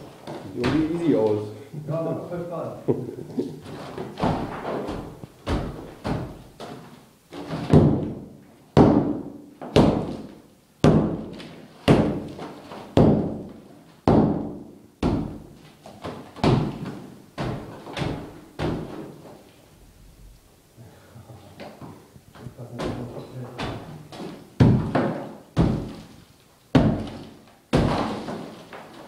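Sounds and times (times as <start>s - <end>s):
wall chunks falling loose: 3.6s - 8.2s, 22.8s - 29.0s
hammer smashing plaster wall: 3.7s - 6.7s, 7.3s - 15.4s, 16.0s - 19.1s, 23.6s - 26.1s, 26.7s - 28.9s.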